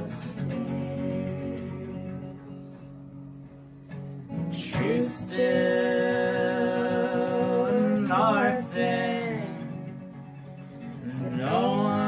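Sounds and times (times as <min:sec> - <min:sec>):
person singing: 0:00.0 - 0:02.9, 0:04.5 - 0:10.2, 0:11.0 - 0:12.0
acoustic guitar chords: 0:00.0 - 0:12.0.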